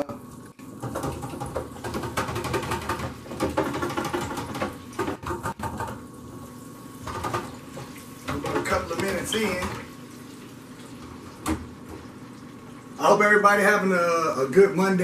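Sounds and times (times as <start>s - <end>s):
fryer basket knocks: 0.8s - 6.0s
food sizzling in deep fryer oil: 5.9s - 14.0s.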